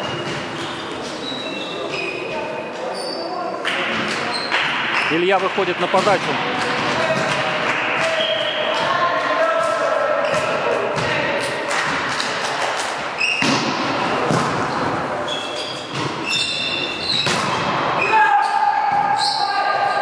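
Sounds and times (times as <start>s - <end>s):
shoe squeaks: 0.0s - 3.5s, 4.3s - 5.4s, 13.2s - 13.5s, 15.2s - 17.4s, 18.0s - 19.7s
volleyball struck with thuds: 13.4s - 15.0s, 17.1s - 17.9s.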